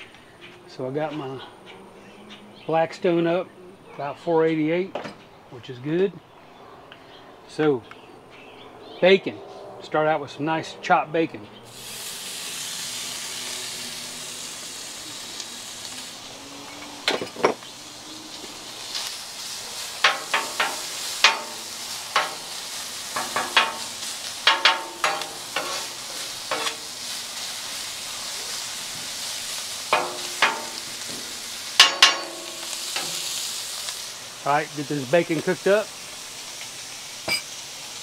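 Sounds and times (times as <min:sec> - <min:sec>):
bacon sizzling on a griddle: 0:11.7 - 0:38.0
metal spatula scraping and tapping: 0:20.0 - 0:22.5, 0:23.2 - 0:26.8, 0:29.9 - 0:31.2, 0:31.8 - 0:33.2.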